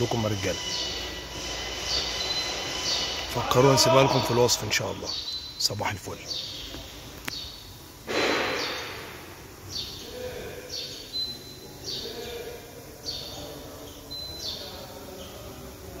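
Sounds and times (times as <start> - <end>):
bird chirping: 0.0 - 15.7
whistled bird notes: 0.6 - 3.3.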